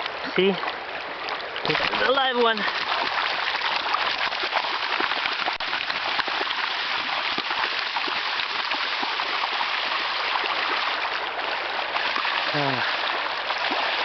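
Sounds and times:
river water rushing: 0.0 - 14.0.

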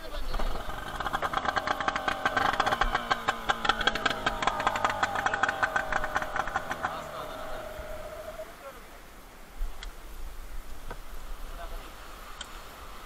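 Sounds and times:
outboard motor popping: 0.0 - 8.6.

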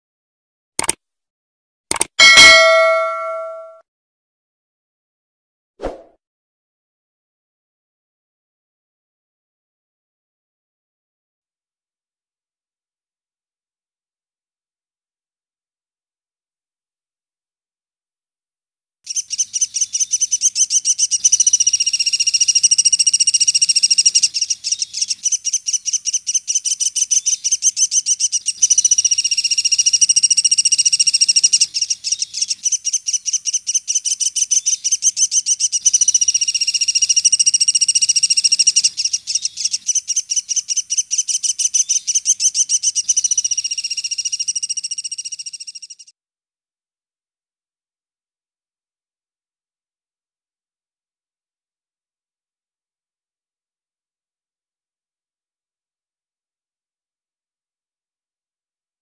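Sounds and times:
woodpecker chattering trill: 19.1 - 46.0.

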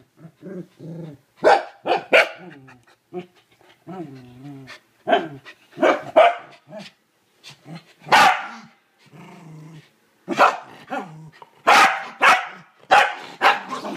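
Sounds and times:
puppy growling low: 0.0 - 1.4, 2.4 - 4.8, 9.0 - 10.0
puppy barking: 1.4 - 2.6, 5.1 - 6.6, 8.1 - 8.7, 10.3 - 11.0, 11.6 - 13.9.

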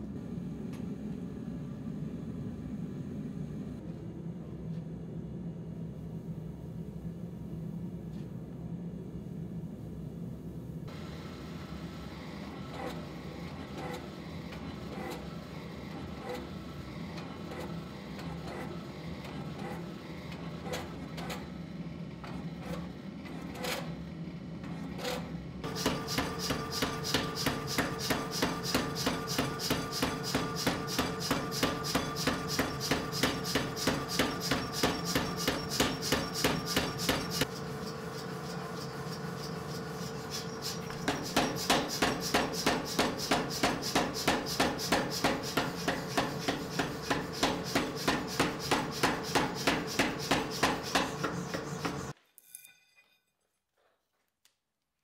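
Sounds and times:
power hammer blows: 25.6 - 37.5, 39.5 - 52.2.

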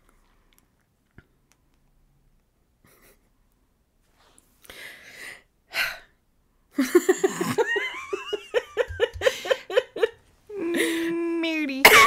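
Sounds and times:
person giggling: 6.8 - 11.1.

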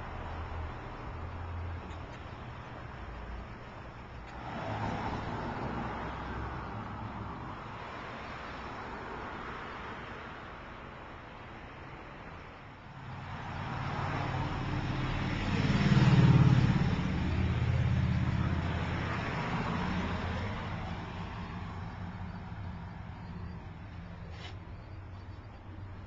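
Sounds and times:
vehicle driving past: 13.4 - 24.2.

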